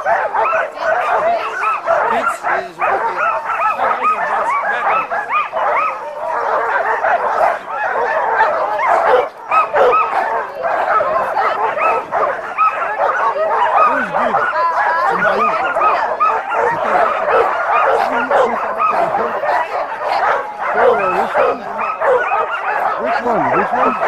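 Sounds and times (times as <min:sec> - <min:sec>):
sled dogs barking and whining: 0:00.0 - 0:24.0.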